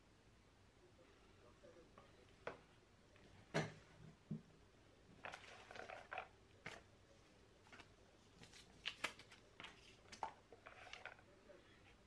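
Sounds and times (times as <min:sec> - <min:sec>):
paper rustling: 0:07.6 - 0:12.0.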